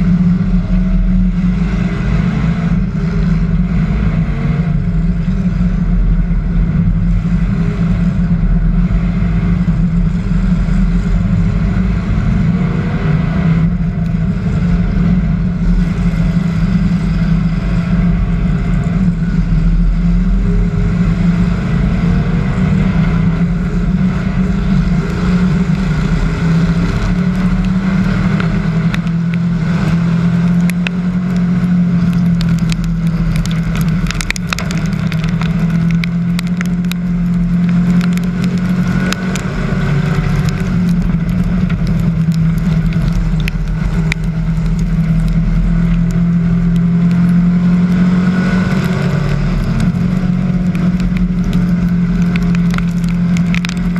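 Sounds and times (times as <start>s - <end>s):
race car engine running hard: 0.0s - 53.9s
sharp clicks and rattles: 23.2s - 53.9s.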